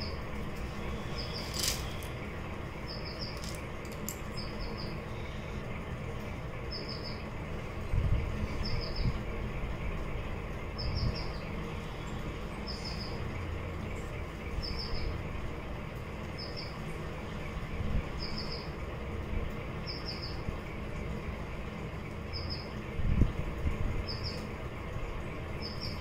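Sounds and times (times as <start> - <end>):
bird chirping: 0.0 - 2.2, 2.8 - 3.6, 4.3 - 5.5, 6.6 - 7.3
steady low rumble: 0.0 - 26.0.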